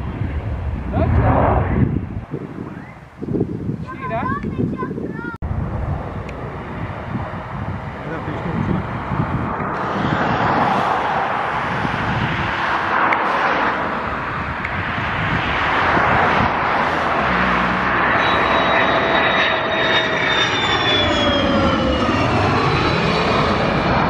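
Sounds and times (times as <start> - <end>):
jet engine roar: 0.0 - 4.2, 5.4 - 24.0
high whine falling in pitch: 15.7 - 23.8.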